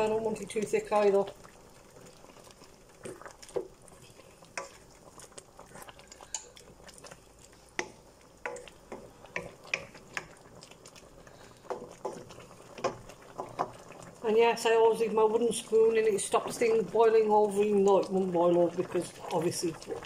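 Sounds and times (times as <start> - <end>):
sauce bubbles plopping: 0.0 - 14.8.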